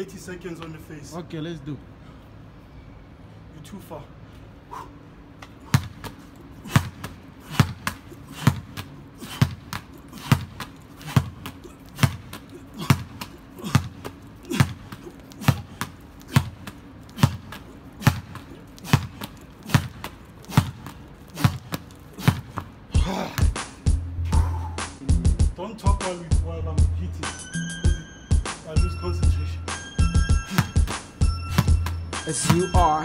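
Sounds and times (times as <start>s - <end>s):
soccer ball thumps: 5.7s - 23.6s, 30.5s - 32.9s.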